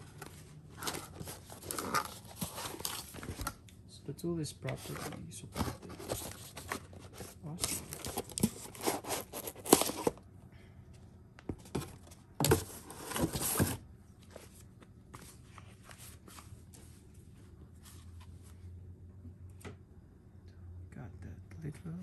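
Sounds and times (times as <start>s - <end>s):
cardboard scraping and crinkling: 0.0s - 3.6s, 4.6s - 10.2s, 11.5s - 14.6s.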